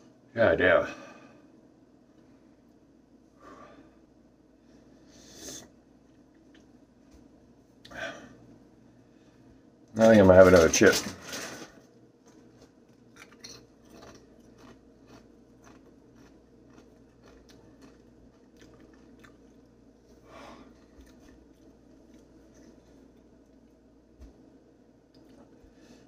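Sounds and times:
chip being chewed: 12.2 - 19.8, 20.5 - 23.8.

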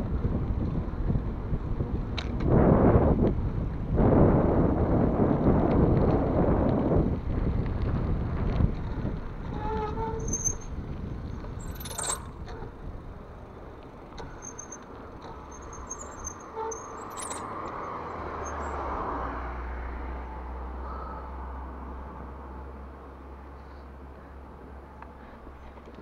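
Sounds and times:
wind buffeting microphone: 0.0 - 19.1
tyre noise on asphalt: 0.0 - 21.1.

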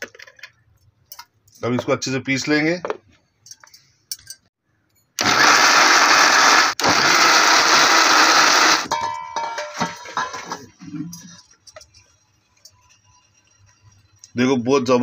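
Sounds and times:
mixer grinder motor whining: 5.2 - 8.9.

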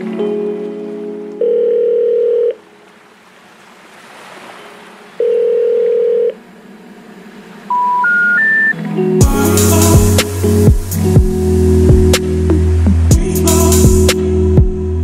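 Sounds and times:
telephone ringback tones: 1.4 - 2.6, 5.2 - 6.4, 7.7 - 8.8
short rising beeps: 7.7 - 8.8.

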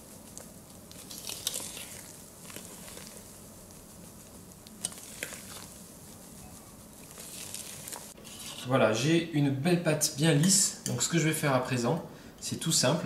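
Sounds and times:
whisk swishing in batter: 0.0 - 8.7.

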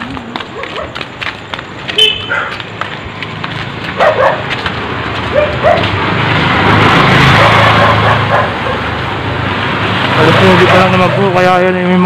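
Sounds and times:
dog barking: 0.5 - 1.0, 2.2 - 2.6, 4.0 - 4.5, 5.3 - 6.0, 7.3 - 8.9
motorcycle passing by: 3.4 - 12.0.

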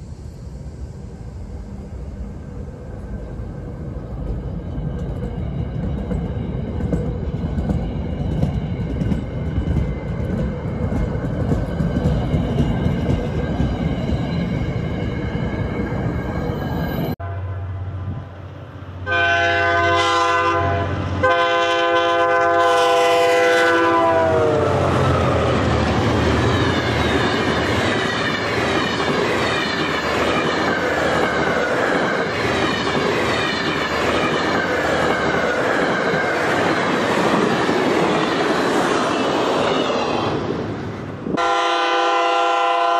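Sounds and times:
train wheels rumbling on rails: 0.0 - 17.2, 18.0 - 42.9
train horn blasts: 17.2 - 18.2, 19.0 - 24.9, 41.4 - 42.9.

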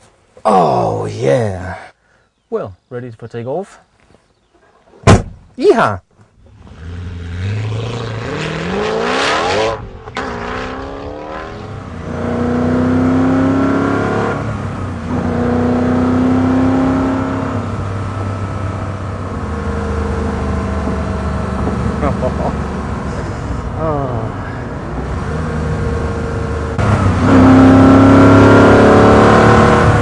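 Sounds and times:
car engine accelerating hard: 6.5 - 30.0.

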